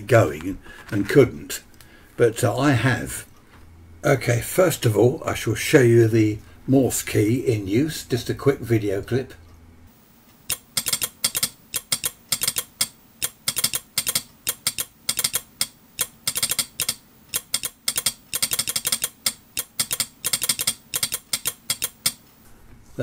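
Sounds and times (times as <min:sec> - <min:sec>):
morse key clicking: 0:10.5 - 0:22.2.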